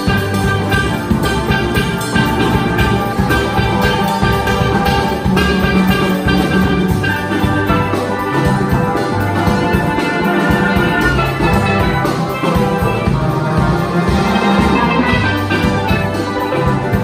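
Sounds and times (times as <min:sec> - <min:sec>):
drum kit beat: 0:00.0 - 0:17.0
steel pans playing melody: 0:00.0 - 0:17.0.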